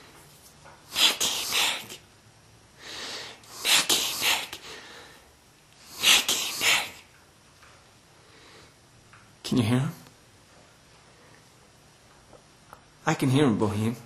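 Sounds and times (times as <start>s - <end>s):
person whispering breathily: 0.9s - 2.0s, 3.5s - 4.7s, 5.8s - 7.0s.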